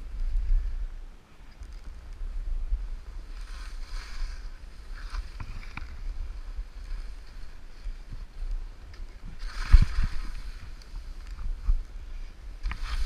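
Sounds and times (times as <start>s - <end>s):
wind rumble on microphone: 0.0s - 13.0s
skis hissing through snow: 3.0s - 11.7s, 12.6s - 13.0s.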